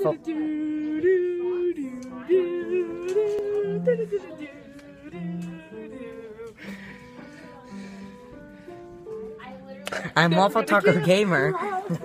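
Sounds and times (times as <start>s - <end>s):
person singing yodel-like notes: 0.0s - 6.7s.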